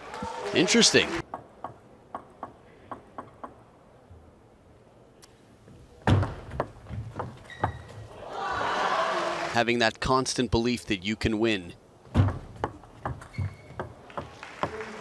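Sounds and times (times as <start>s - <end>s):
table tennis ball bouncing: 12.1s - 14.8s.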